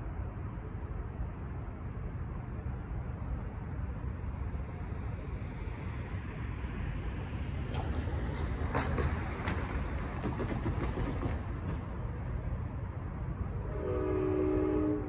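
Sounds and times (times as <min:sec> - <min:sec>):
tires clattering over rails: 0:07.7 - 0:12.3.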